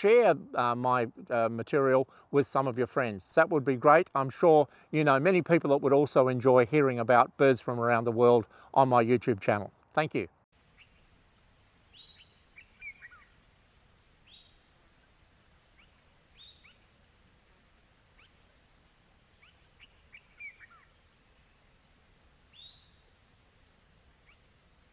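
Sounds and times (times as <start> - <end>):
crickets chirping: 10.5 - 24.9
bird chirps: 10.6 - 24.9
bird twittering calls: 10.6 - 24.9.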